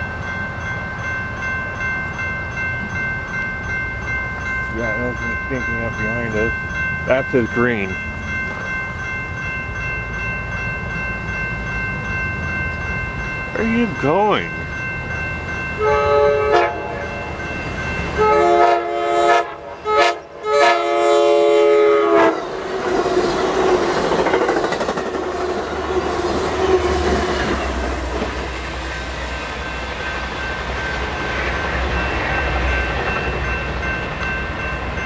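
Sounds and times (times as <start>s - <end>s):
train cars rumbling and clacking: 0.0s - 35.0s
train air horn blasts: 15.8s - 17.1s, 18.2s - 22.4s.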